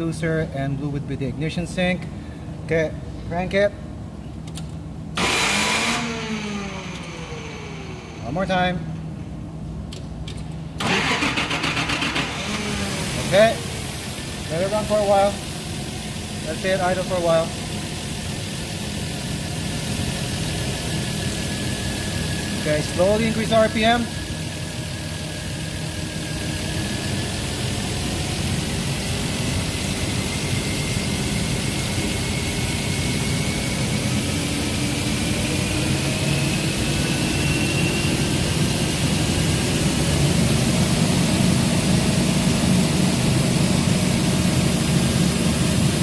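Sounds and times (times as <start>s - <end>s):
forklift engine revving: 5.2s - 8.2s, 10.8s - 14.5s.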